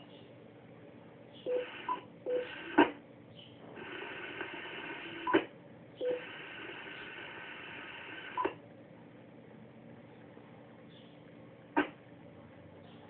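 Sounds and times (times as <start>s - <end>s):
radio receiver hiss: 1.6s - 3.0s, 3.7s - 5.5s, 6.1s - 8.6s.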